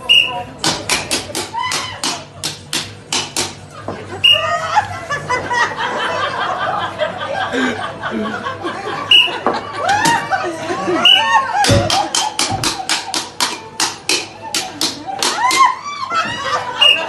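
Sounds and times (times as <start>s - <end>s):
crowd laughing and shouting: 0.0s - 17.0s
sharp knocks: 11.6s - 15.4s.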